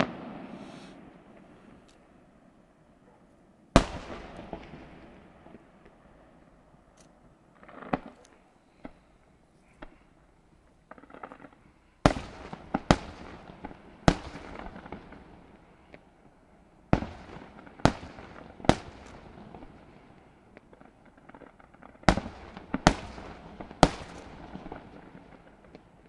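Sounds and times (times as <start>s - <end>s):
rolling echo: 0.0s - 3.2s, 3.8s - 16.4s.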